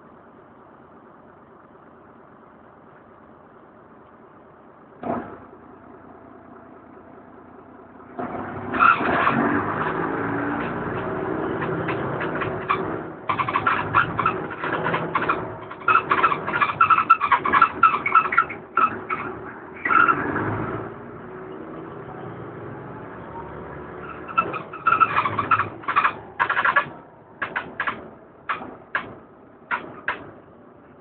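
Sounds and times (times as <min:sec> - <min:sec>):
bus engine: 0:00.0 - 0:31.0.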